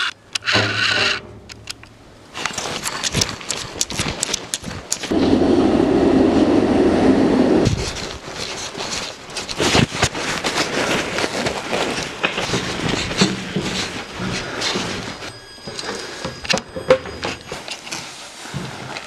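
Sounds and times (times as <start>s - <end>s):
loud rumbling noise: 5.1s - 8.3s
footsteps crunching on ballast: 7.6s - 16.4s.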